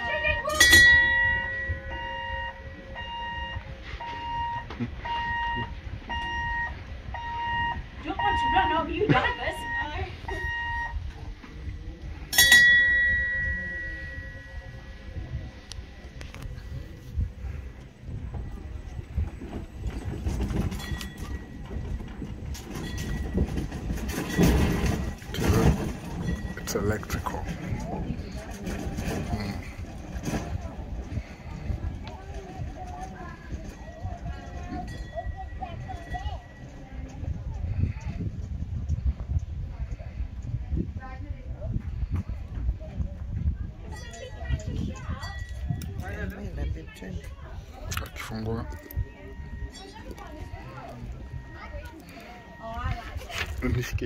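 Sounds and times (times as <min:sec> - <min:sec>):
train warning beeper: 0:00.0 - 0:11.2, 0:48.0 - 0:53.4
wheels clicking on rails: 0:00.0 - 0:42.8
small locomotive rumbling: 0:00.0 - 0:54.0
bell strike ringing: 0:00.5 - 0:03.0, 0:12.3 - 0:15.0.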